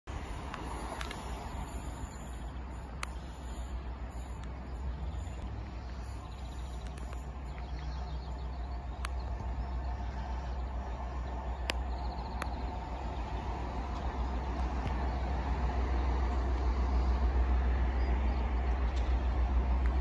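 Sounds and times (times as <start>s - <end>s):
train rumble: 0.1s - 20.0s
birds chirping: 0.8s - 19.7s
faint clicks: 5.4s - 8.0s, 8.8s - 9.5s, 11.6s - 12.8s.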